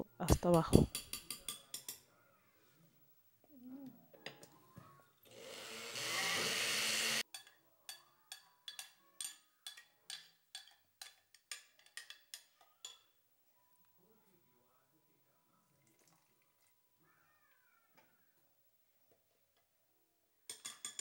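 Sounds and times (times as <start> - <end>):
blender motor running: 5.3 - 7.2.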